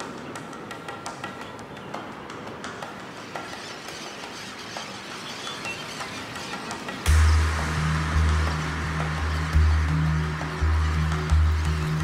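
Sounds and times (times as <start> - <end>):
steady hiss: 6.0 - 12.0.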